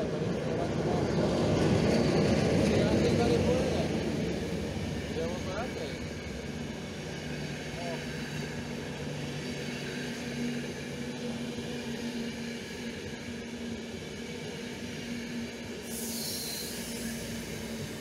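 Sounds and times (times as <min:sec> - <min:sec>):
train wheels rumbling on rail: 0:00.0 - 0:18.0
high hiss: 0:14.7 - 0:18.0.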